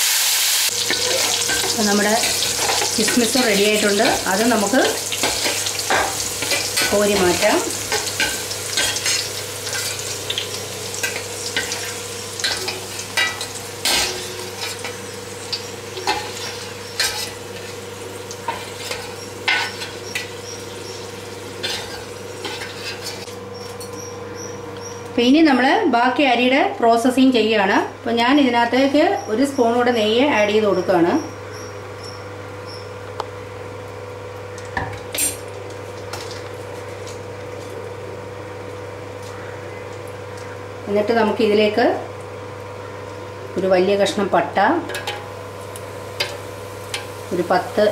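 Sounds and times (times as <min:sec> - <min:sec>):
ghee sizzling in a pan: 0:00.0 - 0:23.3, 0:45.1 - 0:47.9
steady background hum: 0:00.7 - 0:47.9
metal spoon scraping a pan: 0:15.6 - 0:17.8, 0:18.4 - 0:20.3, 0:21.6 - 0:23.3.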